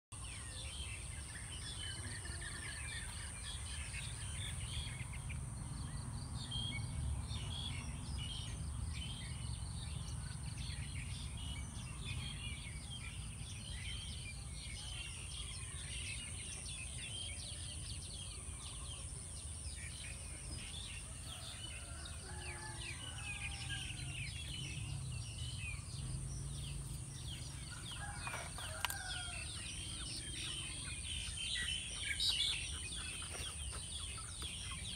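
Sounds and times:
small birds chirping: 0:00.2 - 0:34.9.

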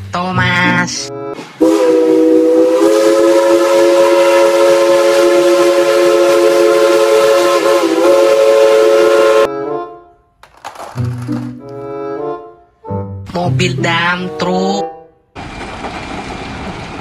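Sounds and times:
steam locomotive chime whistle: 0:01.3 - 0:09.5.

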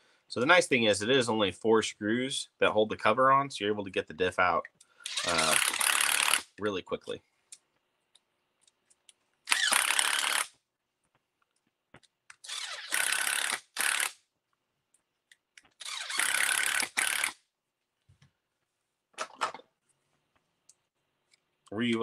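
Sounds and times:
electric screwdriver driving screws: 0:05.1 - 0:06.4, 0:09.5 - 0:10.5, 0:12.4 - 0:14.2, 0:15.8 - 0:17.4.

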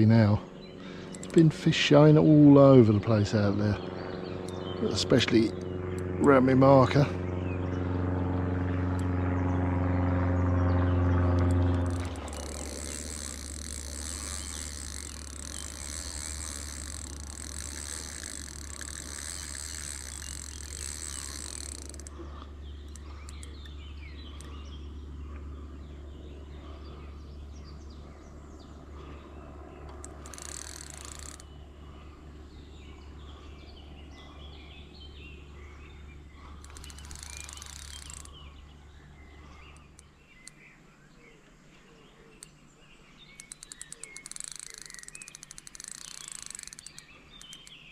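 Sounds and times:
birds chirping: 0:00.0 - 0:47.9
fishing reel ratcheting: 0:01.0 - 0:01.6, 0:11.4 - 0:23.7, 0:30.0 - 0:31.5, 0:36.5 - 0:38.4, 0:43.4 - 0:47.9
low steady rumble: 0:03.7 - 0:30.3
high insect trill: 0:11.7 - 0:22.1.

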